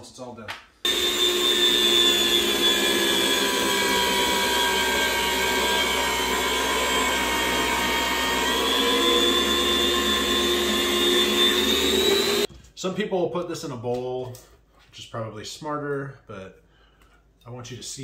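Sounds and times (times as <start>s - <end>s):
electric meat slicer whining: 0.9s - 12.5s.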